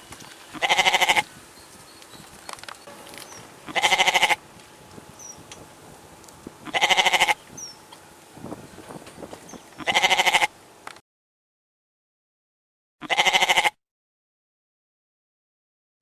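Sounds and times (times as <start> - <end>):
goat bleating: 0.5 - 1.3, 3.6 - 4.4, 6.6 - 7.4, 9.8 - 10.5, 13.0 - 13.8.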